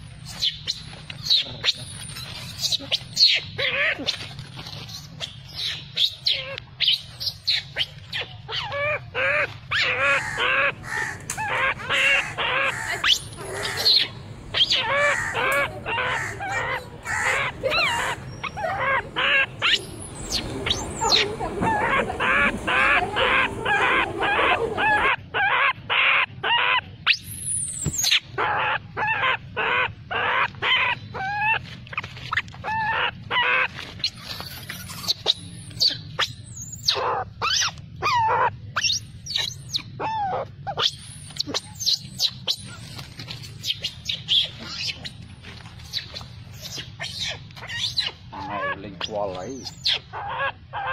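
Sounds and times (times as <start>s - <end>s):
high chirping animal calls: 4.9s - 31.6s, 32.3s - 45.2s, 45.8s - 50.9s
steady low hum: 9.6s - 25.1s.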